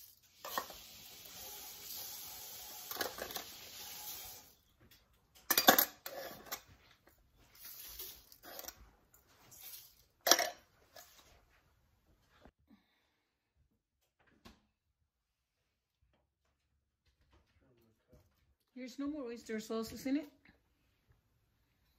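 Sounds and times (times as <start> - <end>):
dry rustle of spices: 7.5 - 8.6.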